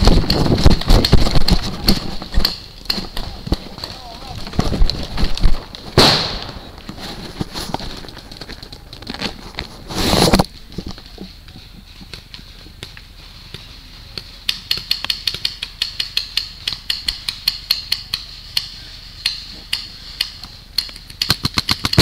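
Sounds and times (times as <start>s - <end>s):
sharp gunshots: 6.0s - 6.7s.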